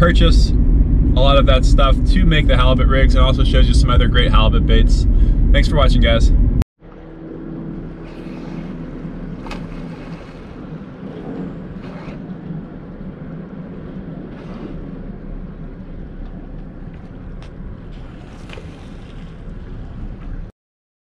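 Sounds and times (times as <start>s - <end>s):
boat engine idling: 0.0s - 20.5s
water splashes: 7.8s - 20.5s
wind on microphone: 7.8s - 20.5s.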